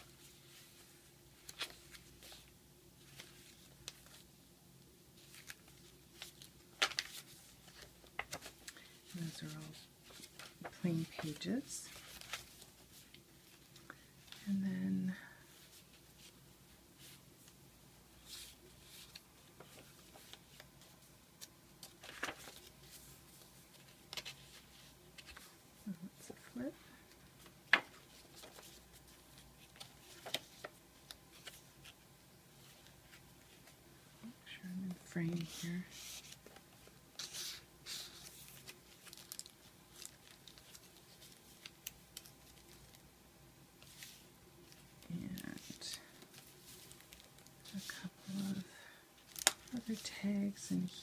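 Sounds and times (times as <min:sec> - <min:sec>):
paper pages turning: 0:00.0 - 0:04.3, 0:05.2 - 0:14.4, 0:18.2 - 0:25.6, 0:27.4 - 0:32.0, 0:35.2 - 0:43.0, 0:43.8 - 0:48.4, 0:49.2 - 0:50.2.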